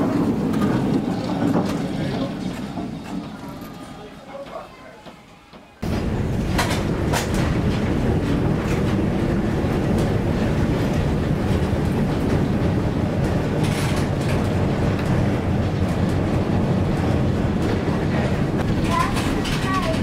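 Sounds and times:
tram wheels and motor rumbling: 0:00.0 - 0:20.0
rattling and clicking: 0:06.0 - 0:20.0.

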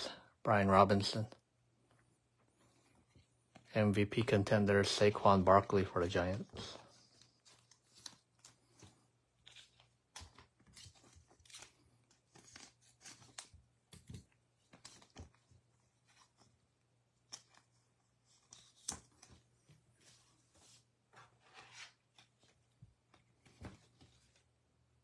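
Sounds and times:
trading cards shuffled by hand: 0:05.6 - 0:15.4.

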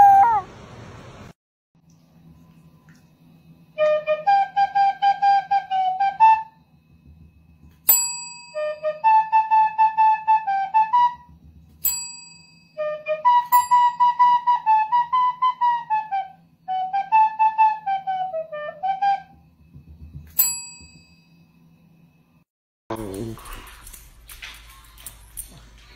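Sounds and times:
flute-like wind instrument tune: 0:00.0 - 0:00.5, 0:03.8 - 0:06.6, 0:08.5 - 0:11.3, 0:12.8 - 0:19.4
desk service bell dings: 0:07.9 - 0:08.6, 0:11.8 - 0:12.8, 0:20.4 - 0:21.5.

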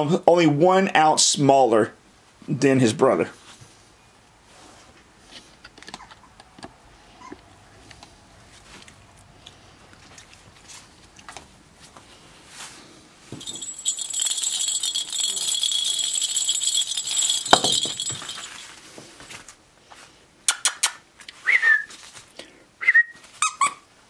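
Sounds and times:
jingle ball rattling: 0:13.3 - 0:18.8.

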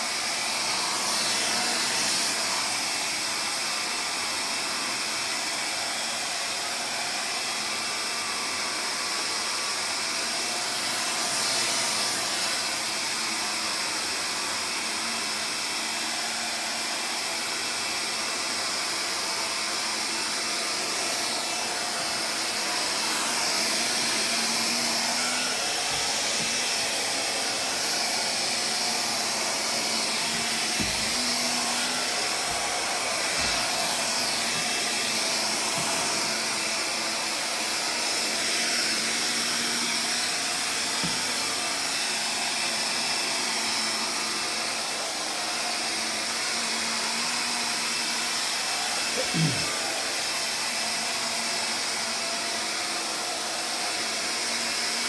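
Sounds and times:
vacuum cleaner running: 0:00.0 - 0:55.0
floor head bumps: 0:29.6 - 0:36.3.

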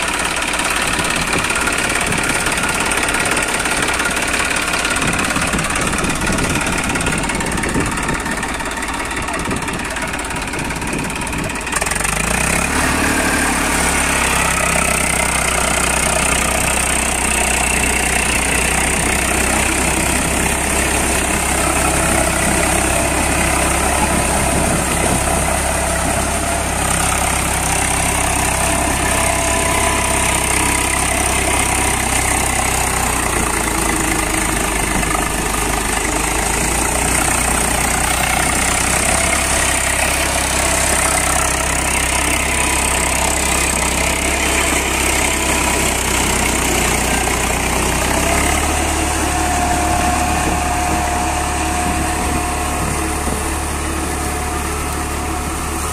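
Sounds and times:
tractor diesel engine running: 0:00.0 - 0:55.9.

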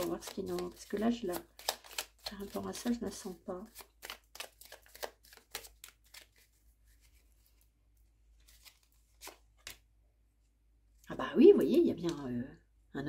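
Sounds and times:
cards shuffling: 0:00.0 - 0:07.7, 0:08.3 - 0:09.8.

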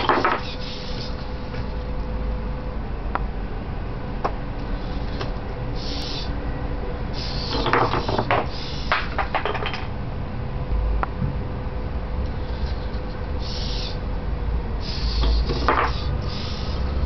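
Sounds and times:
wooden blocks clattering: 0:00.0 - 0:00.5, 0:07.5 - 0:09.9, 0:15.5 - 0:16.0
servos whirring: 0:00.0 - 0:01.8, 0:04.6 - 0:06.4, 0:07.1 - 0:09.2, 0:12.2 - 0:14.2, 0:14.8 - 0:17.0
steady low hum: 0:00.0 - 0:17.0.

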